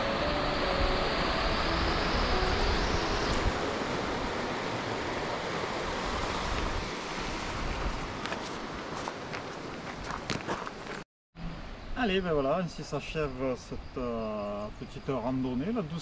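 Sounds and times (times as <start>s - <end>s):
river water rushing: 0.0s - 10.1s
wind rumbling on microphone: 0.0s - 10.9s.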